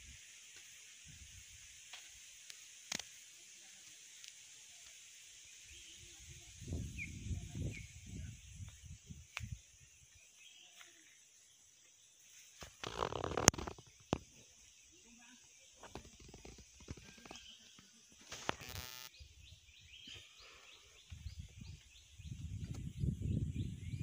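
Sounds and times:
steady high hiss: 0.0 - 22.3
bird chirps: 12.8 - 24.0.

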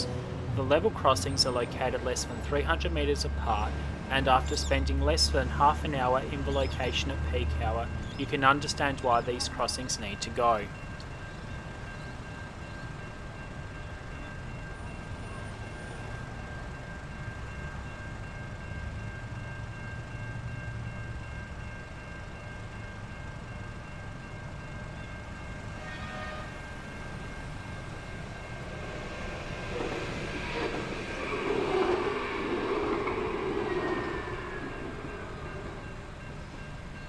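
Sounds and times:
tram rumble: 0.0 - 37.0
level crossing bells ringing: 0.6 - 29.8
road traffic rumble: 25.3 - 37.0.

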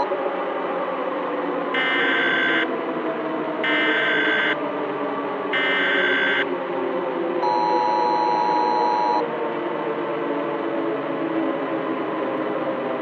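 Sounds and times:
electronic alarm buzzer: 1.8 - 2.7, 3.7 - 4.6, 5.6 - 6.5, 7.4 - 9.2.

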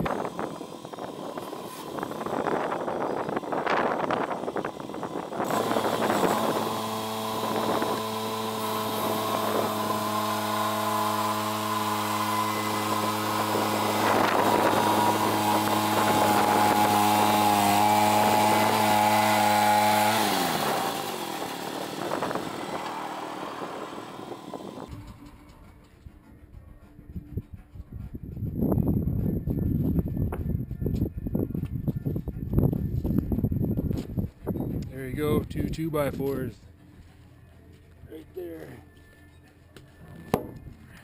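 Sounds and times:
gasoline engine running: 0.0 - 29.1
saw blade ripping wood: 4.6 - 24.9.

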